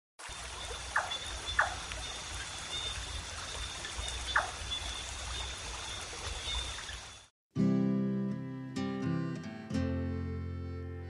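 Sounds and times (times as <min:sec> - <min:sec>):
water trickling: 0:00.2 - 0:07.3.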